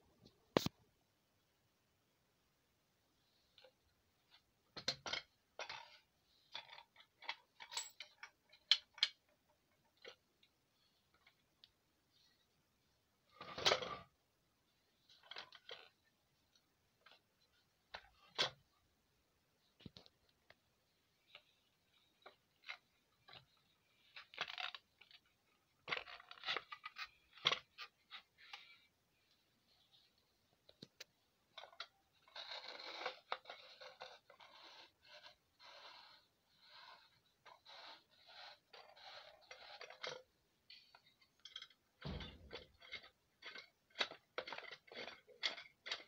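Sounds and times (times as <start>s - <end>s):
metallic clicks and knocks: 41.3s - 46.0s.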